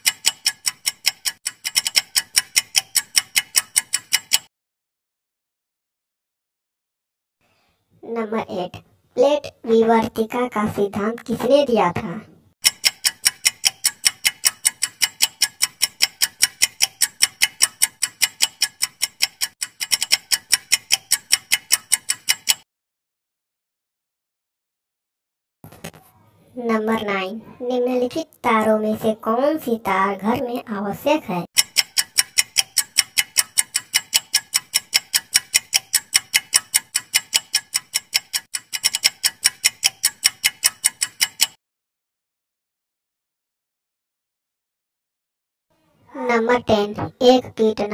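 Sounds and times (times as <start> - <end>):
clock ticking: 0.0 - 4.5, 12.6 - 22.6, 31.5 - 41.6.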